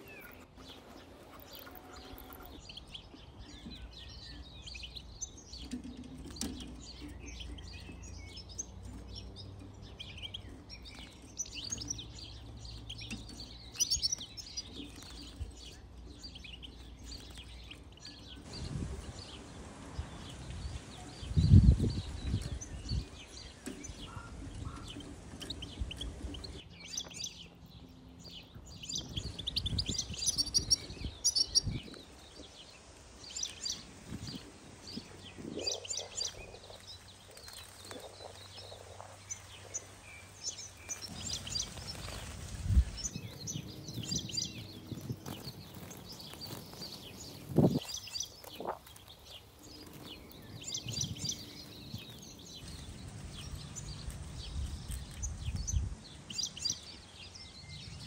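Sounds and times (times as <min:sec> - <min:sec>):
finches twittering: 0:20.2 - 0:58.0.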